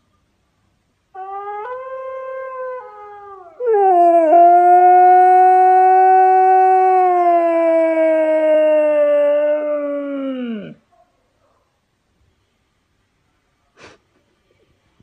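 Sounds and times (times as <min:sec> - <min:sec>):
husky howling: 0:01.2 - 0:10.8.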